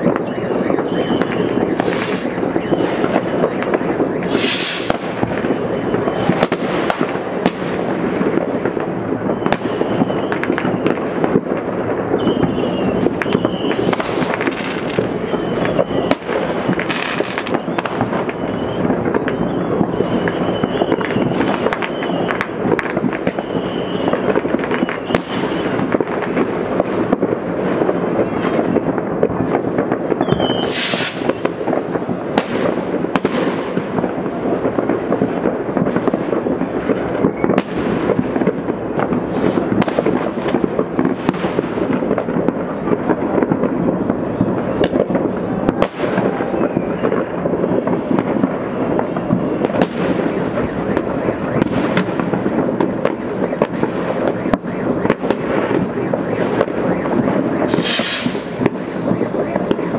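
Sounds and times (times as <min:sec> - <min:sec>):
distant fireworks bangs and crackles: 0:00.0 - 0:59.9
sharp firework bangs: 0:00.0 - 0:59.9
brief hiss: 0:30.6 - 0:31.2.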